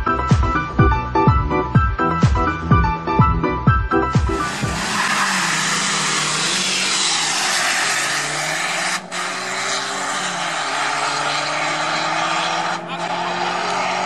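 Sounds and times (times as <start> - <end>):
car engines accelerating hard: 4.2 - 14.0.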